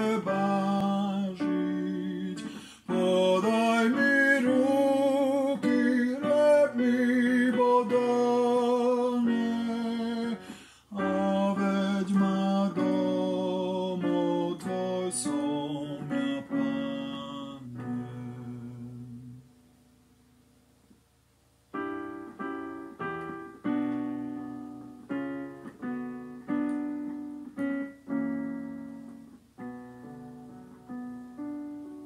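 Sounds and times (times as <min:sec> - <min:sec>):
person singing a hymn: 0:00.0 - 0:19.6
acoustic guitar chords: 0:00.0 - 0:20.4, 0:21.7 - 0:32.0.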